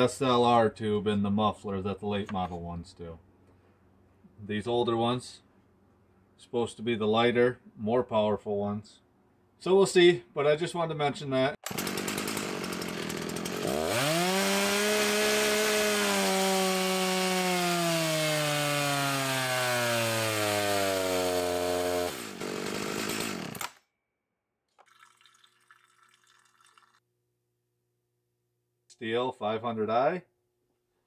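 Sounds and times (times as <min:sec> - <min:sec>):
chainsaw revving under load: 0:11.6 - 0:23.8.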